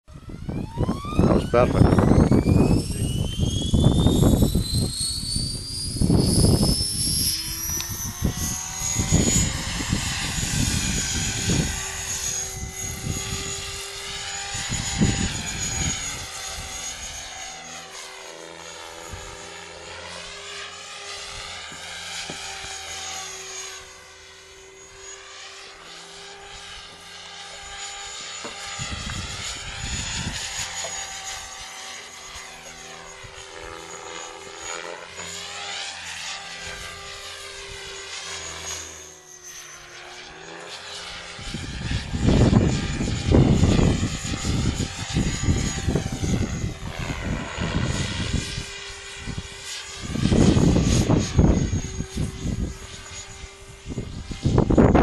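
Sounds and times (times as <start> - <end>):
wind rumble on microphone: 0.1 - 17.4, 28.5 - 33.8, 41.0 - 55.0
model helicopter whine: 0.1 - 55.0.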